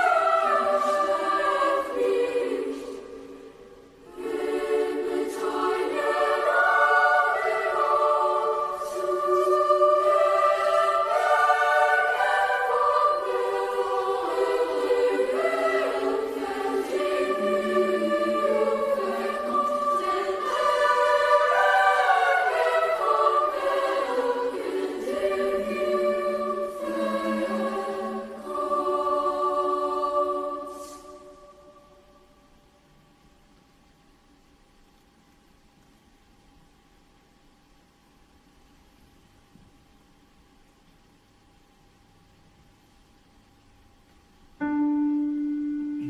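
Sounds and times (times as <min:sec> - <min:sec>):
girls' choir singing: 0:00.0 - 0:32.4.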